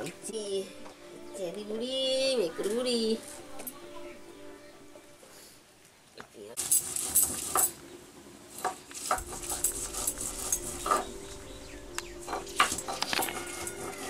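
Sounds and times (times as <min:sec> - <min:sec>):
stone roller scraping on grinding stone: 0:06.6 - 0:07.9, 0:08.5 - 0:11.5, 0:12.2 - 0:14.0.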